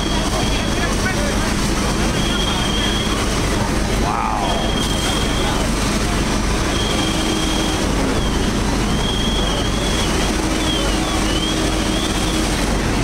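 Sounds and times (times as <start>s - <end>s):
loud engine drone: 0.0s - 13.0s
thin high whine: 4.0s - 5.7s.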